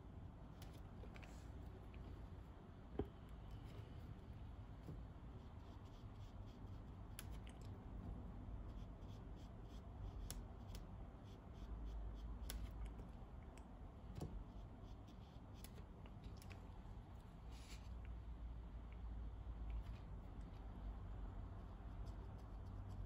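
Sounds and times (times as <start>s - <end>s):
low steady hum: 0.0s - 23.0s
faint clicks and taps: 2.8s - 4.1s.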